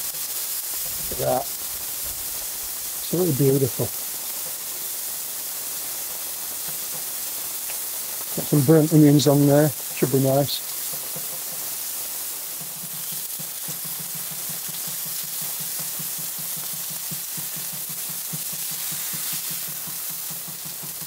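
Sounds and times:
burgers sizzling on a hot plate: 0:00.0 - 0:21.0.

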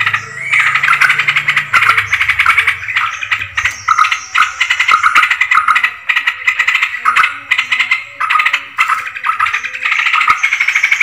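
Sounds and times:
bulbuls bubbling chatter: 0:00.0 - 0:11.0.

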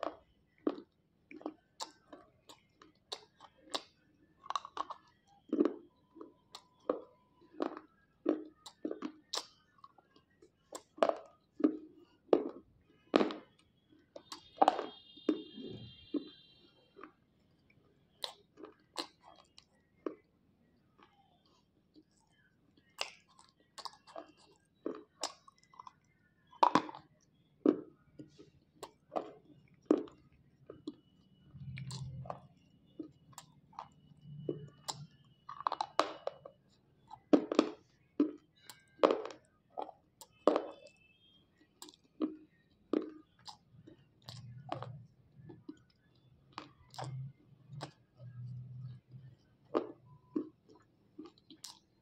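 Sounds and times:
crunching bites: 0:21.0 - 0:41.0, 0:41.8 - 0:52.0.

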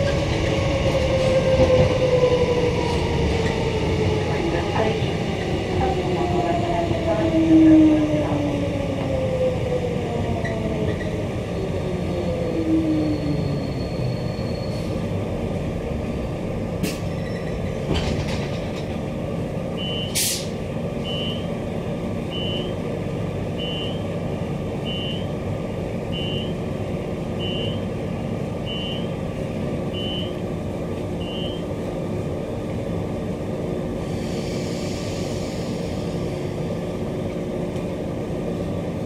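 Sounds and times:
electric train car hum: 0:00.0 - 0:39.0
short high beeps: 0:19.8 - 0:20.2, 0:31.2 - 0:31.6.

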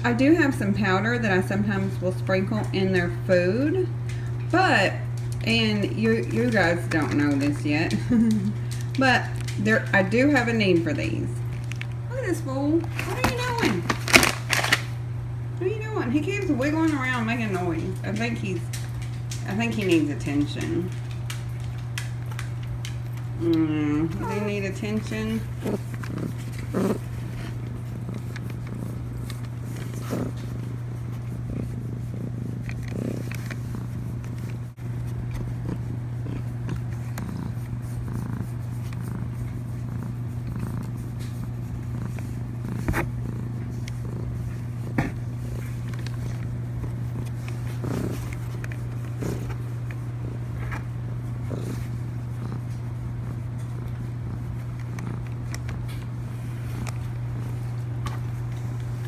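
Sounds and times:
cat purring: 0:16.0 - 0:59.0.

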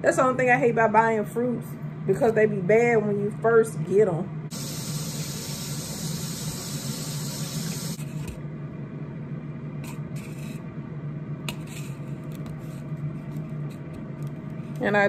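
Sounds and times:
steady hiss: 0:04.5 - 0:08.0.

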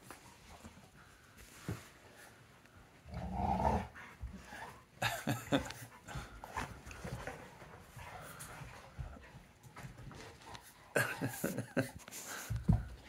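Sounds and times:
dog growling: 0:03.1 - 0:04.0.

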